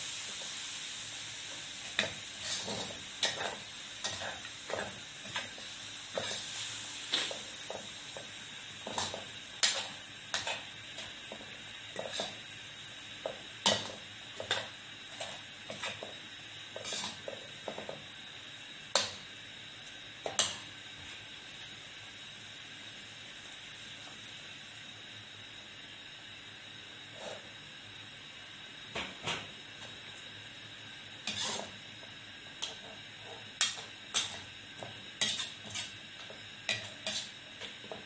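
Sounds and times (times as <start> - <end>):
food sizzling in a pan: 0.0 - 38.0
metal ladle scraping a wok: 31.3 - 31.7.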